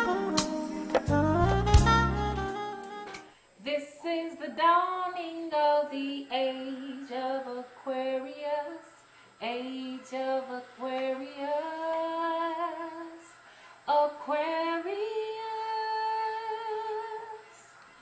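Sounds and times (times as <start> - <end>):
saxophone jazz tune: 0.0 - 3.4
woman singing unaccompanied: 3.6 - 18.0.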